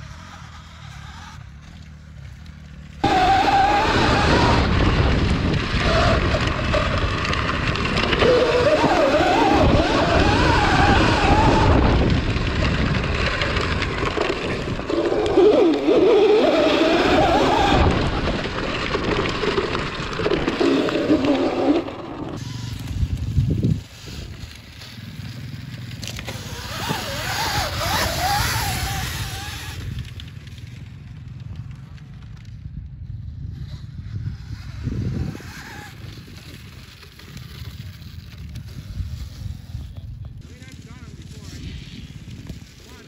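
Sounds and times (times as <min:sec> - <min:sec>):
wind rush: 0:03.0 - 0:24.4.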